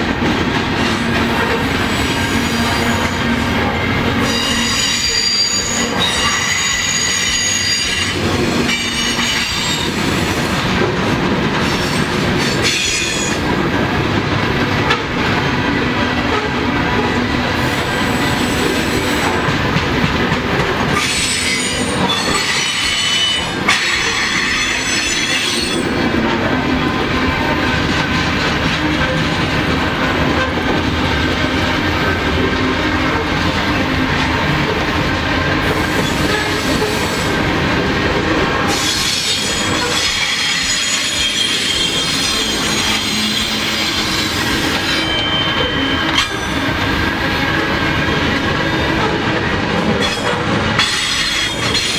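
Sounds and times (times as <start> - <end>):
train wheels rumbling on rails: 0.0 - 51.9
high-pitched wheel squeal: 4.2 - 8.2, 38.7 - 46.6.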